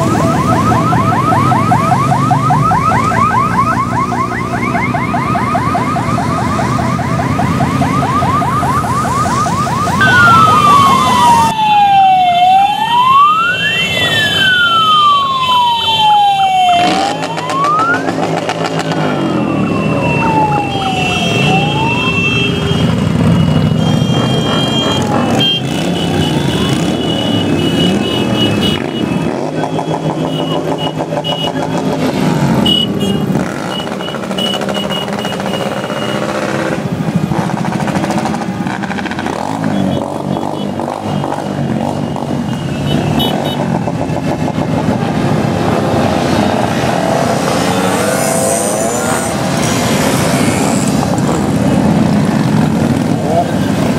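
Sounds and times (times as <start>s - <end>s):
siren yelp and wail: 0.0s - 25.9s, 46.2s - 53.9s
motorcycles riding past: 0.0s - 53.9s.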